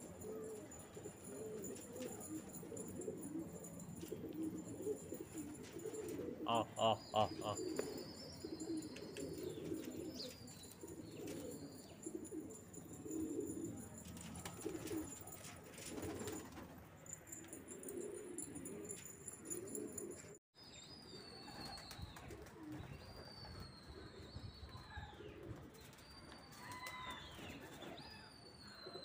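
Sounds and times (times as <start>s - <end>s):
pigeons cooing: 0.0s - 16.7s, 17.3s - 20.4s, 25.0s - 25.8s
faint high bird chirps: 5.0s - 12.6s, 20.6s - 29.0s.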